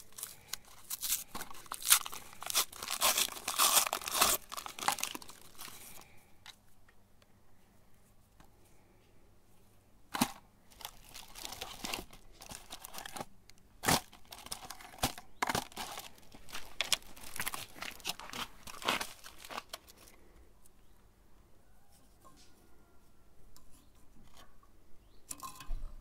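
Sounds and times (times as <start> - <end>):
wrappers crinkling and tearing: 0.0 - 6.1, 10.7 - 20.2.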